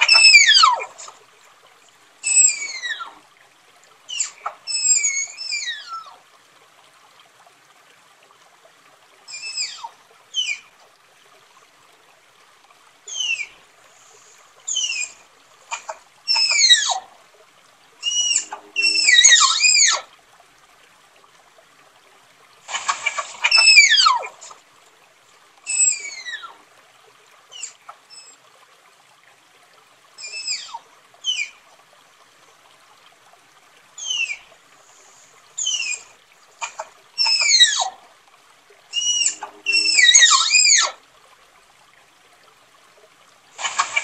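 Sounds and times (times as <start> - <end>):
tapir whistling calls: 0.0 - 0.9, 2.2 - 3.1, 4.1 - 6.1, 9.3 - 10.6, 13.1 - 13.6, 14.7 - 17.0, 18.0 - 20.0, 23.1 - 24.3, 25.7 - 26.5, 30.2 - 31.6, 34.0 - 34.5, 35.6 - 36.1, 36.7 - 37.9, 38.9 - 41.0.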